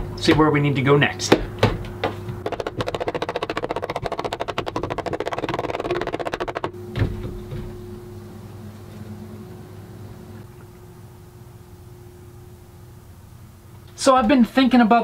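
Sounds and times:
faint steady hum: 0.0s - 15.0s
mallet tapping wooden box: 2.4s - 6.8s.

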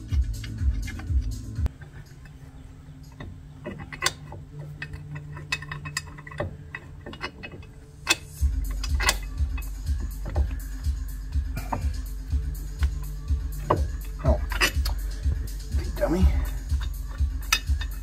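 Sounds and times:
background music with low beat: 0.0s - 18.0s
metallic clicks of tools: 3.0s - 10.8s, 11.6s - 18.0s.

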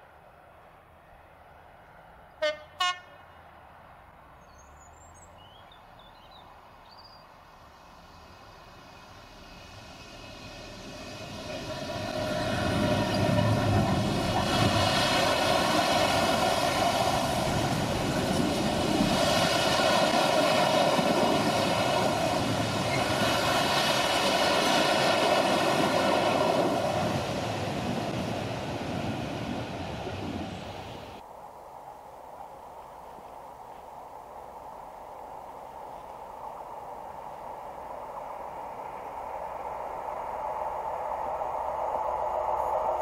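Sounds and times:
diesel locomotive passing: 0.0s - 4.7s, 5.3s - 31.2s, 32.5s - 43.0s
freight wagons rolling on rails: 9.0s - 31.2s.

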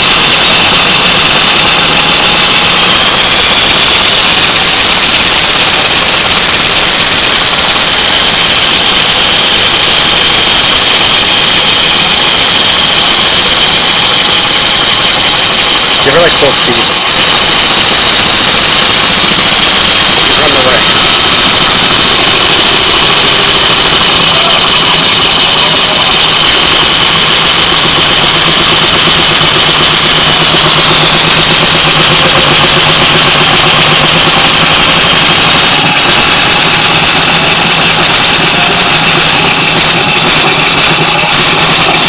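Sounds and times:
model steam engine hissing: 14.4s - 17.1s, 20.3s - 21.1s, 35.7s - 37.8s.

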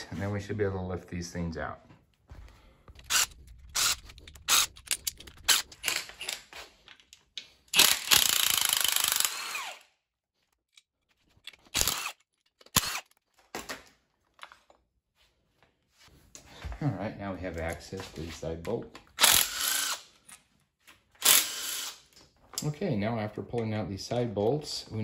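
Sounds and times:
power tool bursts: 7.7s - 9.8s, 11.7s - 12.2s, 19.2s - 20.0s, 21.2s - 22.0s.

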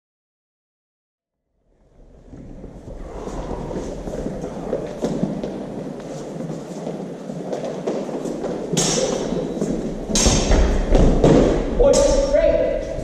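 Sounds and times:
footwork in echoing hall: 1.8s - 13.0s
loud sharp clashes: 8.7s - 9.5s, 10.1s - 12.4s.

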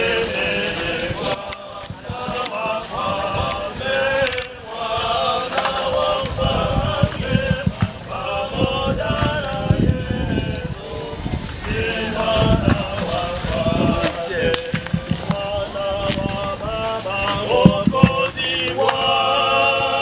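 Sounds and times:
crowd singing a chant: 0.0s - 20.0s
low thumps: 0.8s - 18.7s
sharp knocks: 17.6s - 18.3s.

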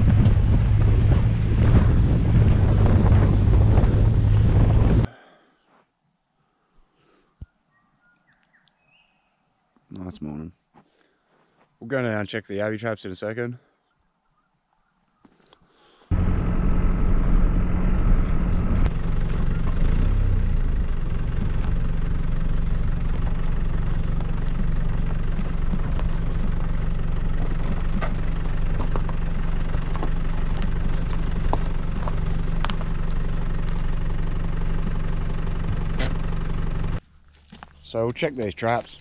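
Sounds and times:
vehicle engine droning: 0.0s - 5.1s, 16.1s - 39.0s
rattles and knocks in cab: 20.9s - 33.9s.

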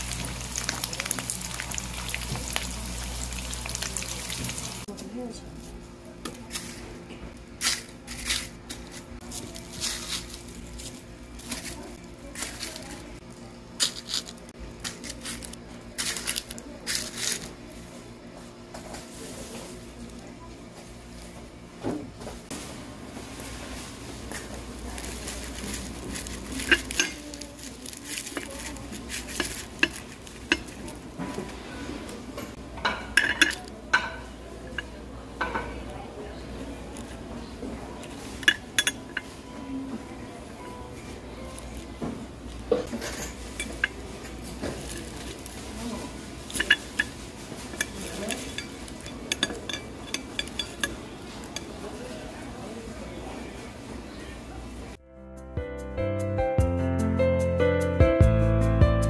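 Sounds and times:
crispy crust crackling: 0.0s - 4.9s, 7.6s - 17.9s, 23.3s - 32.2s, 41.0s - 52.4s
spoon clinking on ceramic dish: 26.6s - 27.2s, 32.9s - 34.2s, 38.4s - 39.4s, 42.9s - 44.0s, 46.5s - 51.7s
cutlery clinking on plate: 32.8s - 35.7s, 38.4s - 39.4s, 42.8s - 45.2s, 46.5s - 51.7s
fork and knife scraping a plate: 46.5s - 51.7s.

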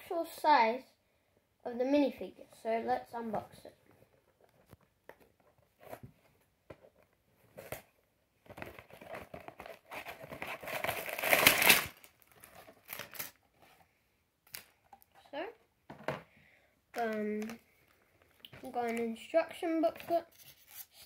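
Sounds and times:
cardboard box rustling: 5.4s - 13.1s
plastic bags crinkling: 8.5s - 13.4s.

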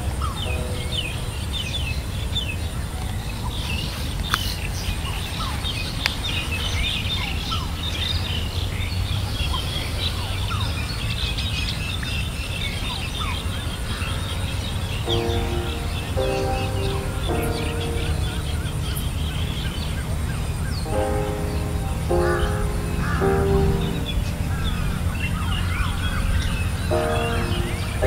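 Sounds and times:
birds chirping: 15.0s - 28.0s.

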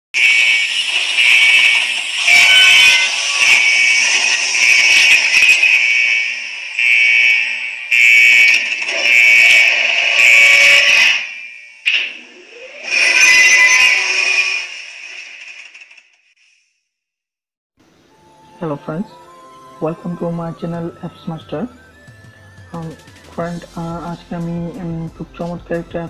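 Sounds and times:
harsh high-pitched buzzing tone: 0.2s - 15.6s.

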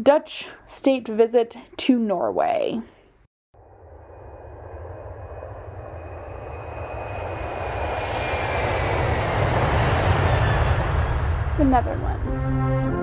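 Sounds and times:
faint high engine whine: 3.6s - 12.7s
airplane engine rumble: 3.6s - 13.0s.

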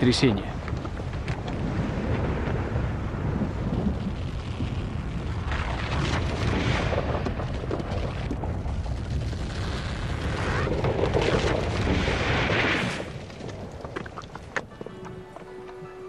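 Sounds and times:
deep earthquake rumble: 0.0s - 14.8s.

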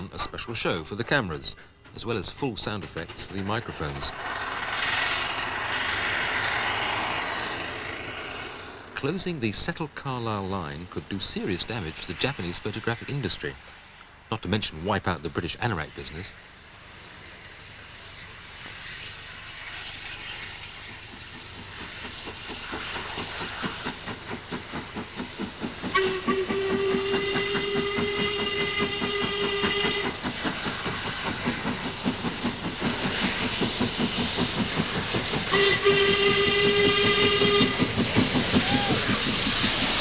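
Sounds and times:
steam hissing: 1.5s - 9.2s, 15.4s - 40.0s
steam locomotive exhaust beating: 1.6s - 9.3s, 16.0s - 40.0s
steam locomotive whistle: 25.9s - 30.2s, 35.5s - 39.3s.

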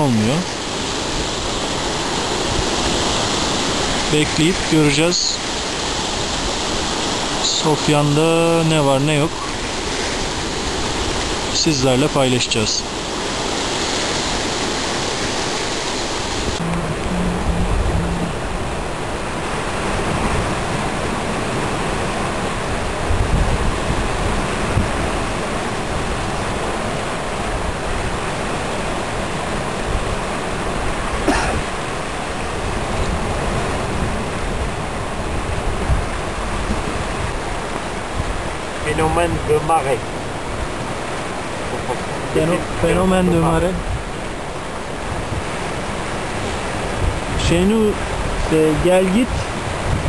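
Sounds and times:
waves washing against rocks: 0.0s - 50.0s
wind rumble on microphone: 12.9s - 50.0s.

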